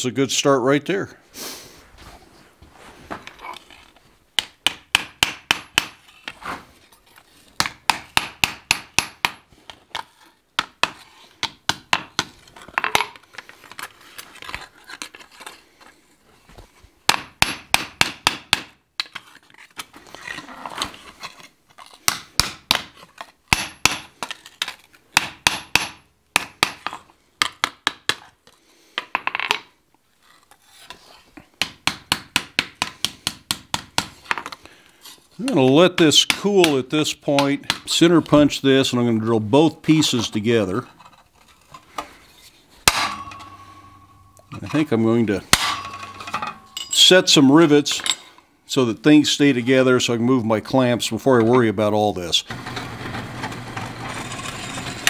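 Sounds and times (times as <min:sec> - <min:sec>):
hammer ringing on sheet steel: 0:42.9 - 0:44.5, 0:45.5 - 0:47.0.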